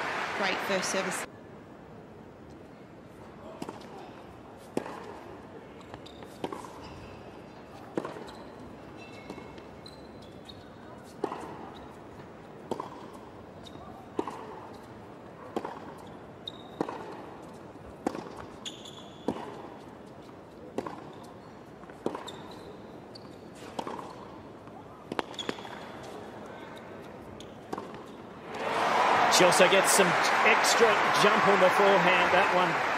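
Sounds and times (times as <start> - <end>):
shoe squeaks: 6.0 - 7.3, 8.1 - 11.0, 16.4 - 16.8, 18.6 - 19.4, 22.2 - 23.7, 25.2 - 28.2.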